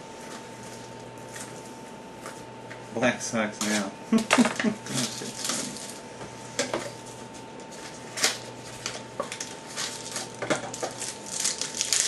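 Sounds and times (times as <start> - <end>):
foil wrapper crinkling: 4.9 - 6.0, 7.8 - 12.0.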